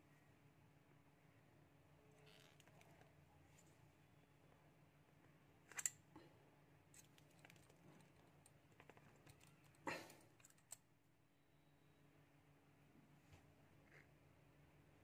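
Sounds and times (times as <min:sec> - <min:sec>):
pliers clicking on metal: 0:05.7 - 0:06.0, 0:10.4 - 0:10.8.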